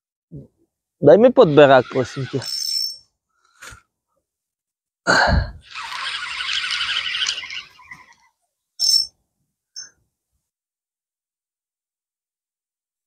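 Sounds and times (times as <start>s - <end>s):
high ringing tone blips: 5.7s - 9.2s.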